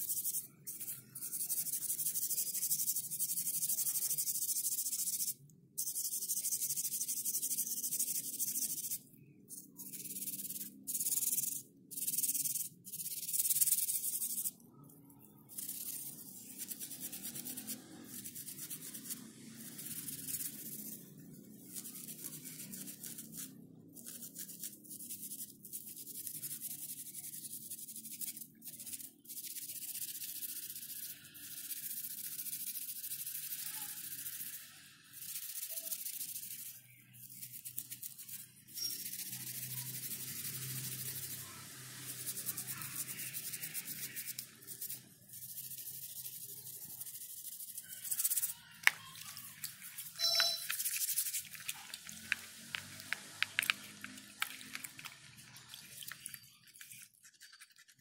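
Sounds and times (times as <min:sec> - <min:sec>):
paint brush bristles scrubbed: 0:00.0 - 0:58.0.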